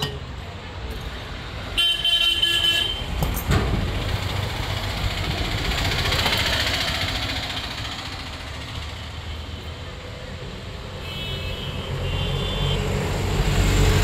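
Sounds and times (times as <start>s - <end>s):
vehicle horn: 1.8s - 3.0s, 11.0s - 12.9s.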